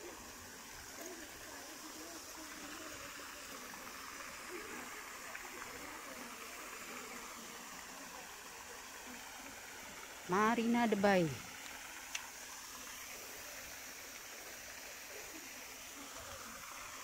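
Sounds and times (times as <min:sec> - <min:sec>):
faint voices: 0:00.0 - 0:11.4
pond fountain splashing: 0:00.0 - 0:17.0.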